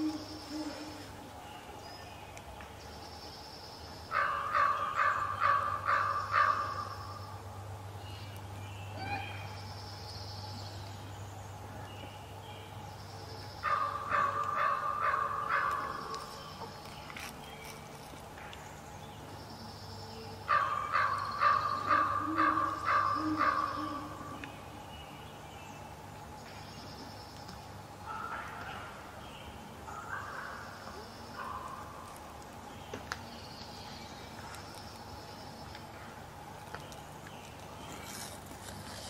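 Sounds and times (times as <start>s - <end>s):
owl hooting: 0.0s - 1.2s, 4.1s - 7.2s, 13.6s - 16.4s, 20.5s - 24.4s.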